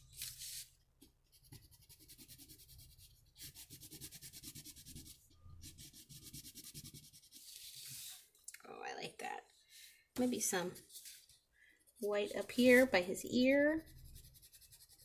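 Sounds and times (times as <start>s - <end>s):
crayon scratching on paper: 1.3s - 8.2s, 12.0s - 15.0s.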